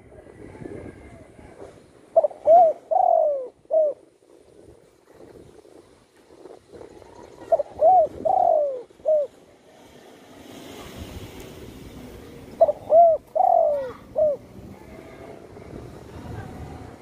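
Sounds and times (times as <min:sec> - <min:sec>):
dove cooing: 0:02.1 - 0:04.1, 0:07.3 - 0:09.4, 0:12.5 - 0:15.4.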